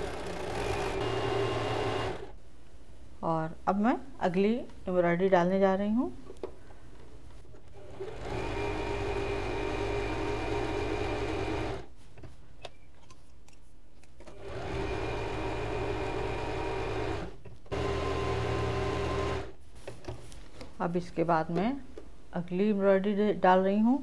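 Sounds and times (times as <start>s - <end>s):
electric sewing machine running: 0.0s - 2.3s, 7.8s - 11.9s, 14.3s - 19.5s.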